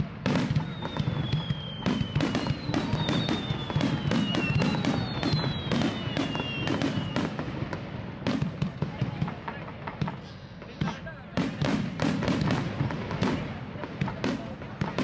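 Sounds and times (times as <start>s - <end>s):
fireworks bursts and bangs: 0.0s - 15.0s
firework whistles gliding down: 0.3s - 7.5s.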